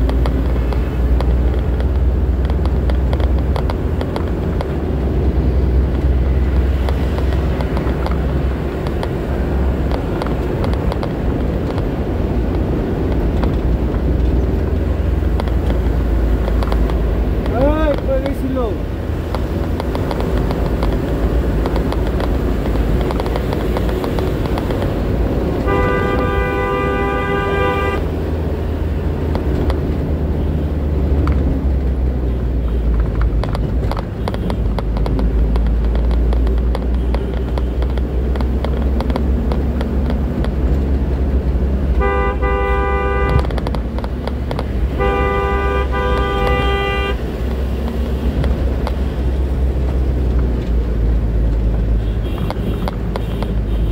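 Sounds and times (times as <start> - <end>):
truck engine and road rumble: 0.0 - 53.9
truck horn blasts: 25.6 - 28.2, 41.9 - 43.6, 44.9 - 47.2, 52.0 - 53.9.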